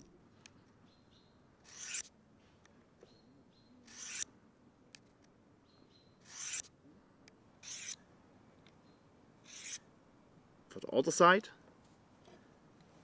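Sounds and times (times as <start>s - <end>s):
knife blade strokes on sharpener: 1.6s - 2.1s, 3.8s - 4.3s, 6.2s - 6.7s, 7.6s - 8.0s, 9.4s - 9.8s.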